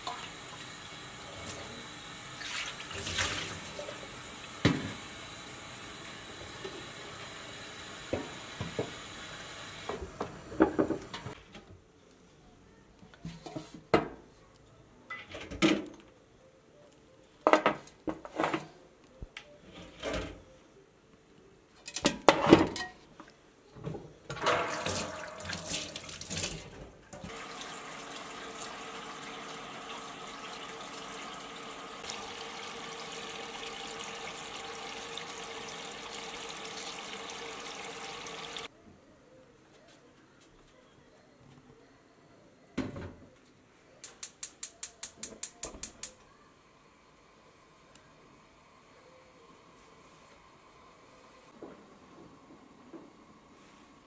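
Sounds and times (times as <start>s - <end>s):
tap water running: 0.0s - 11.4s, 24.3s - 38.7s.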